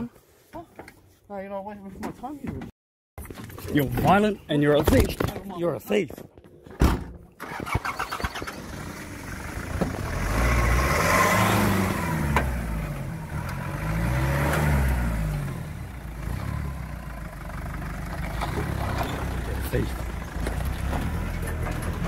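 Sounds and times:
truck engine revving: 0:07.4 - 0:22.0.

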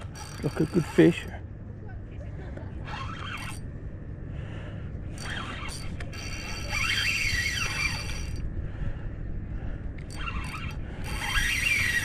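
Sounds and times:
fishing reel whining: 0:00.0 - 0:01.4, 0:02.8 - 0:03.7, 0:05.1 - 0:08.5, 0:10.0 - 0:12.0.

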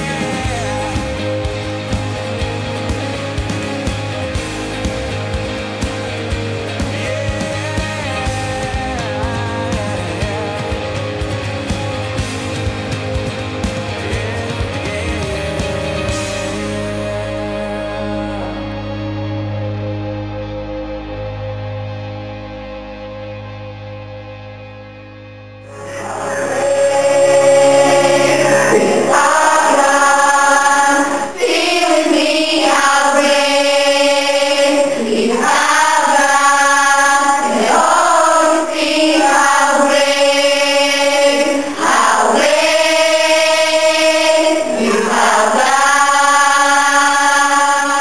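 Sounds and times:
congregation singing: 0:00.0 - 0:02.1, 0:25.7 - 0:48.0.

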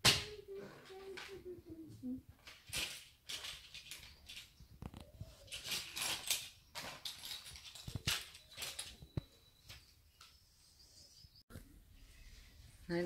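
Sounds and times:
plastic pieces rattling by hand: 0:02.4 - 0:04.6, 0:05.3 - 0:09.0.

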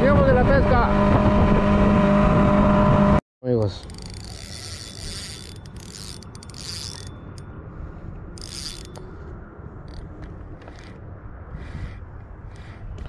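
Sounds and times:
fishing reel clicking: 0:03.7 - 0:07.5, 0:08.4 - 0:09.0, 0:09.9 - 0:10.1.

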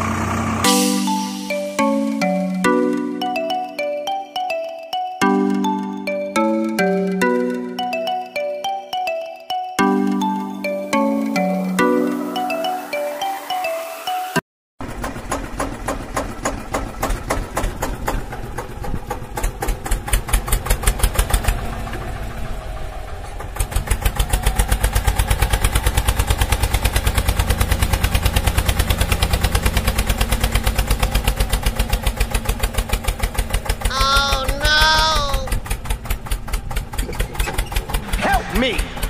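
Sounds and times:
diesel tractor engine chugging: 0:00.0 - 0:01.2, 0:14.8 - 0:39.0.

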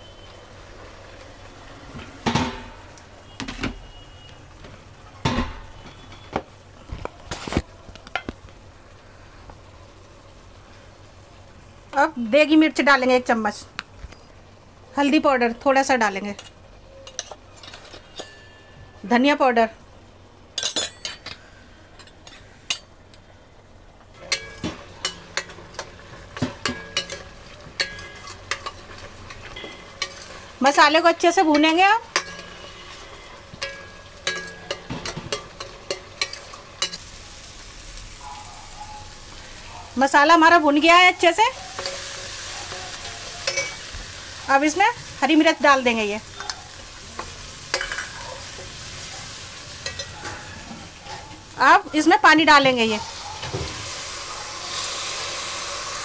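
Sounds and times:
soft sizzle of frying: 0:00.0 - 0:56.0
metal utensils clinking: 0:16.2 - 0:18.7, 0:20.6 - 0:21.4, 0:24.2 - 0:37.1, 0:40.8 - 0:44.0, 0:44.6 - 0:51.3.

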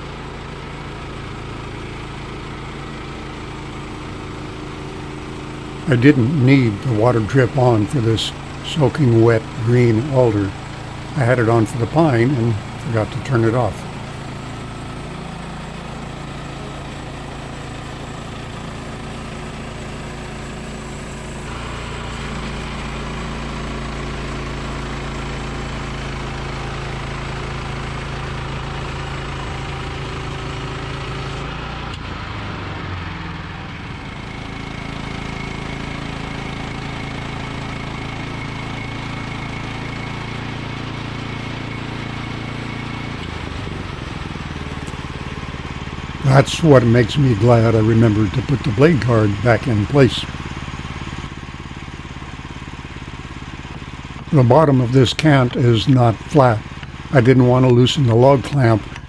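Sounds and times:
sawmill engine running under load: 0:00.0 - 0:59.0
band blade sawing wood: 0:53.7 - 0:59.0.

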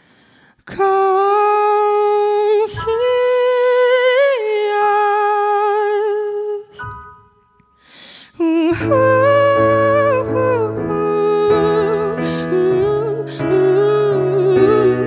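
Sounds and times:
woman singing long wordless notes: 0:00.7 - 0:06.8, 0:08.4 - 0:15.0
faint piano notes: 0:08.7 - 0:15.0.

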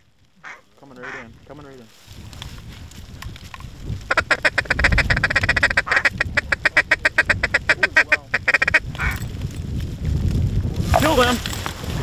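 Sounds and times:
duck call quacks: 0:00.4 - 0:01.3, 0:04.1 - 0:09.2.

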